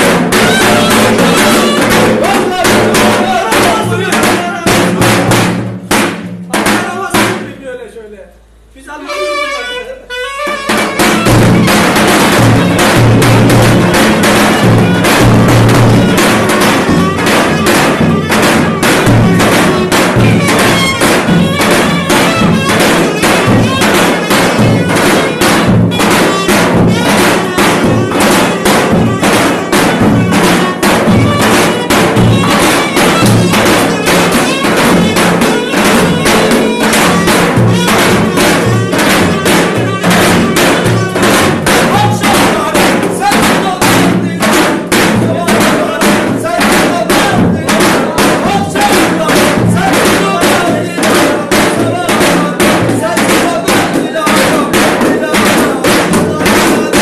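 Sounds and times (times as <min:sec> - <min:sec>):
bass drums beating fast rhythm: 0:00.0 - 0:07.5, 0:10.8 - 0:57.0
clarinet melody: 0:00.4 - 0:02.6, 0:09.0 - 0:13.0, 0:15.9 - 0:42.2.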